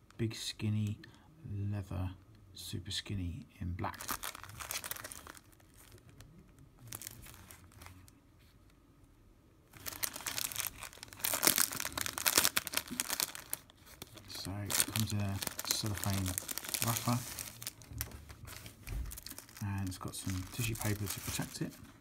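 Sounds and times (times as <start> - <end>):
cellophane wrapper crinkling: 3.9 - 8.2, 9.7 - 22.0.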